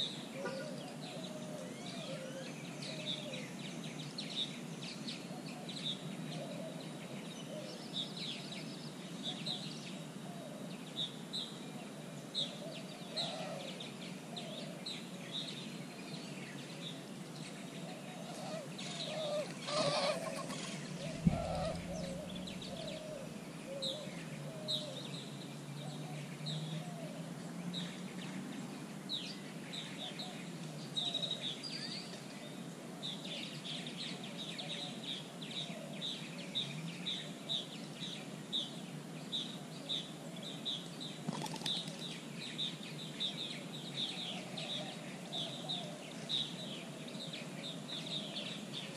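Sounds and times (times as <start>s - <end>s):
chachalacas calling: 0.0s - 3.5s, 17.6s - 25.1s
sudden low thump: 21.1s - 23.0s.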